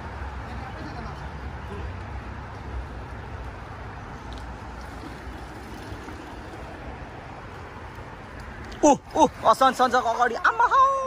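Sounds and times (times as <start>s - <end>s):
stream flowing over stones: 4.6s - 11.0s.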